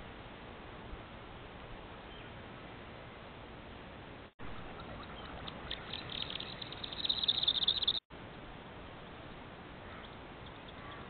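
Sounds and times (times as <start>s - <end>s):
faint microphone hiss: 0.0s - 11.0s
bird twittering trill: 4.6s - 8.0s, 9.8s - 11.0s.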